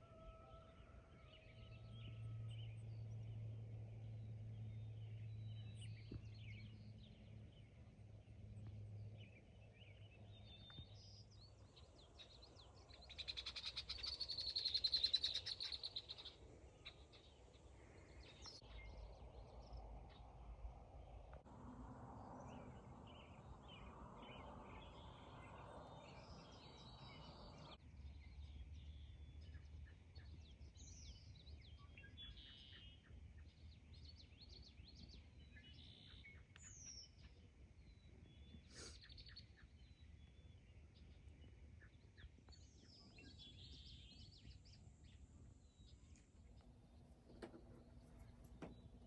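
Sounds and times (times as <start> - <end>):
bird chirps: 9.2 - 21.2, 22.4 - 49.0
low background rumble: 16.1 - 31.8.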